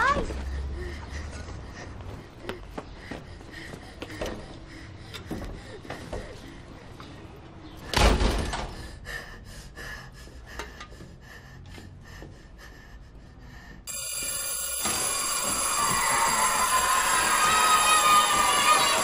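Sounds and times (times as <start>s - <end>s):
door shutting with a bang: 7.9s - 8.8s.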